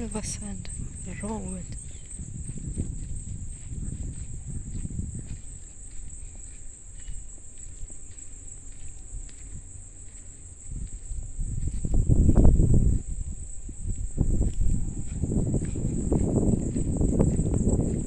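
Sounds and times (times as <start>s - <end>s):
crickets trilling: 0.0s - 18.0s
low rumble on microphone: 0.0s - 18.0s.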